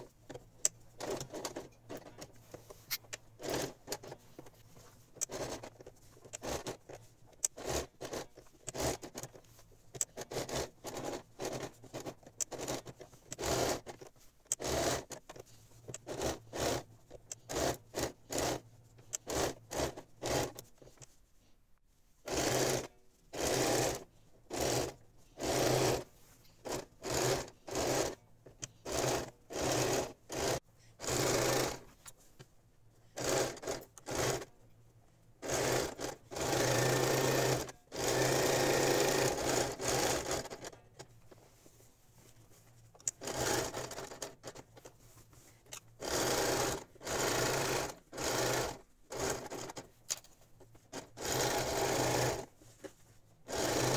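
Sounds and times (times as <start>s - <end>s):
sewing machine stitching: 1.0s - 2.3s, 2.9s - 4.6s, 5.2s - 20.7s, 22.3s - 32.0s, 33.2s - 34.5s, 35.4s - 40.8s, 43.1s - 44.7s, 46.0s - 50.0s, 50.8s - 52.5s, 53.4s - 53.9s.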